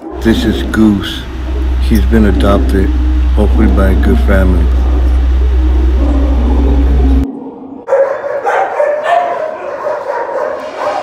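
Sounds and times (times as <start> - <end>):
steady low hum: 0.0 - 7.8
dogs barking and yipping: 7.8 - 11.0.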